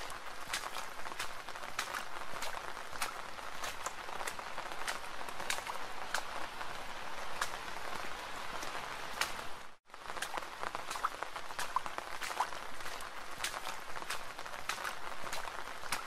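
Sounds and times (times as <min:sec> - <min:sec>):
raindrops hitting close by: 0:00.0 - 0:16.0
steady rain hiss: 0:00.0 - 0:16.0.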